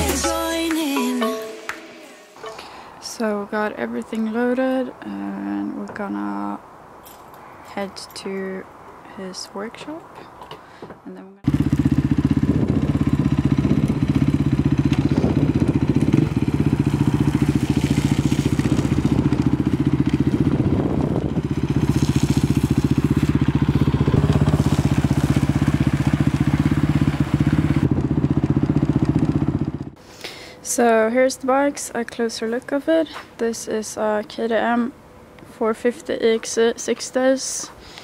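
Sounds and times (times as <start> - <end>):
motorcycle engine running: 11.4 - 30.0.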